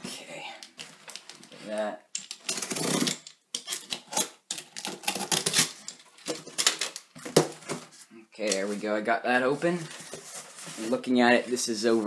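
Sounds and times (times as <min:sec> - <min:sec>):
packing tape ripping: 0:04.1 - 0:05.8.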